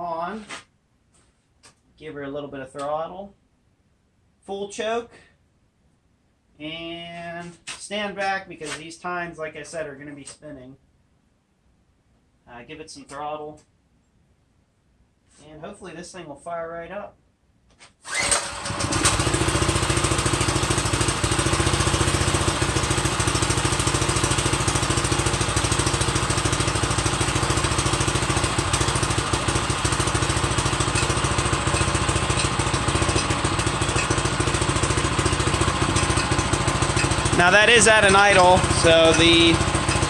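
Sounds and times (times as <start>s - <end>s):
small gas engine idling: 18.1s - 40.0s.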